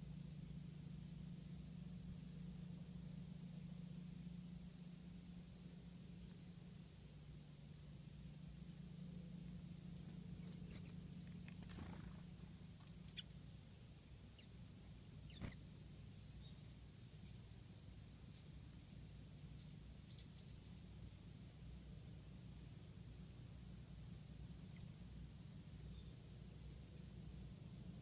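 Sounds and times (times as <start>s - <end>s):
low steady hum: 0.0s - 28.0s
songbirds chirping: 9.0s - 22.8s, 23.4s - 28.0s.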